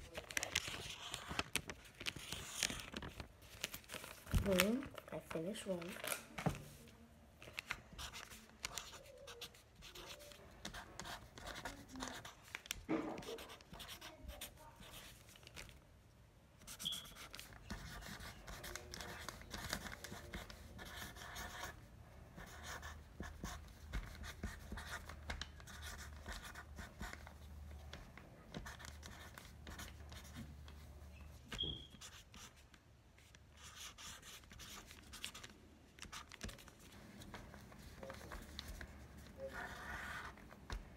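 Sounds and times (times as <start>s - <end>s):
marker pen scratching: 2.2s - 2.9s, 8.0s - 12.4s, 13.1s - 15.3s, 16.7s - 21.8s, 22.4s - 40.6s.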